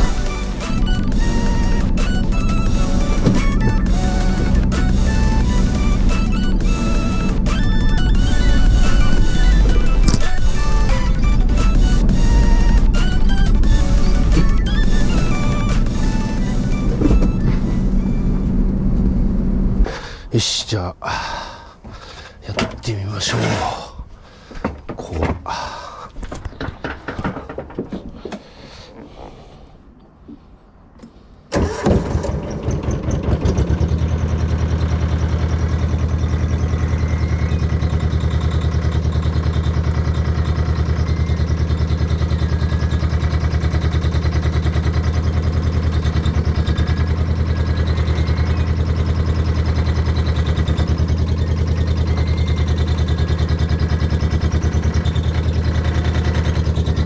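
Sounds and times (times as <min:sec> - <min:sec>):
excavator engine starting and idling: 0:00.0 - 0:30.2, 0:30.8 - 0:57.0
handling knocks: 0:02.9 - 0:04.8.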